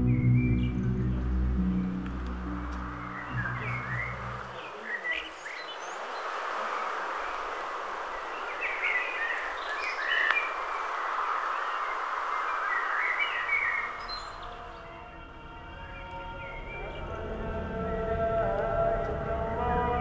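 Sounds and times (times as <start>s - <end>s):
steady music tones: 0.0s - 4.6s
birds chirping: 0.0s - 19.9s
outdoor ambience hiss: 0.9s - 20.0s.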